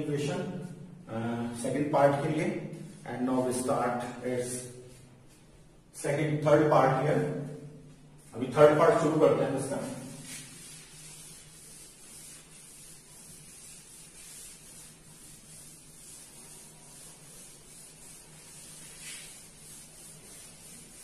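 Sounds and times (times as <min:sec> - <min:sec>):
cloth rubbing on blackboard: 0:06.6 - 0:21.0.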